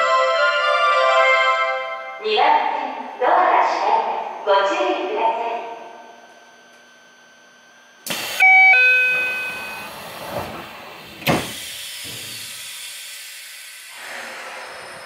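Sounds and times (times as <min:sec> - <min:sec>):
two-note door chime: 0:08.4 - 0:09.9
door thump: 0:11.2 - 0:12.2.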